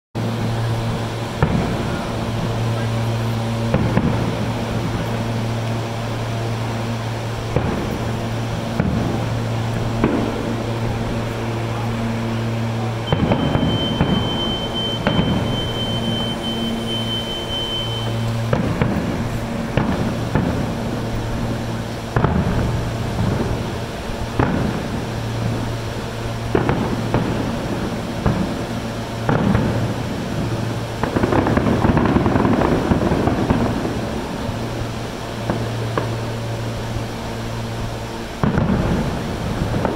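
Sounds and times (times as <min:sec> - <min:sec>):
distant fireworks bangs: 0:00.2 - 0:39.9
electric train hum: 0:00.2 - 0:39.9
high-pitched tone: 0:13.0 - 0:18.5.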